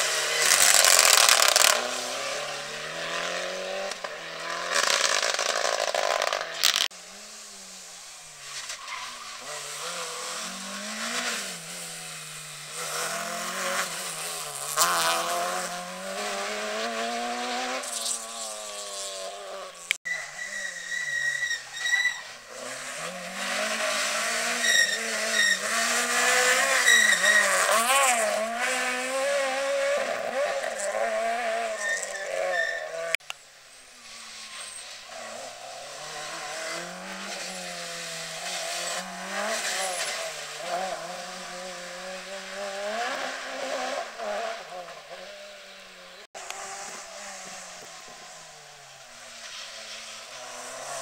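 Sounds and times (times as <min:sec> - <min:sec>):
rally cars revving past: 0:00.0 - 0:20.0, 0:22.2 - 0:33.2, 0:33.9 - 0:51.0
short high squeals: 0:20.1 - 0:22.4, 0:24.4 - 0:27.8, 0:31.4 - 0:33.2.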